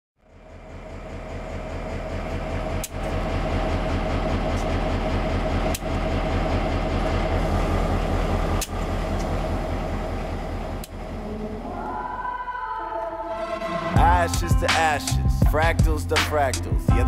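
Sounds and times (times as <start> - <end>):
steady mid-pitched hum: 0.2 - 16.0
diesel locomotive rumbling: 0.2 - 17.0.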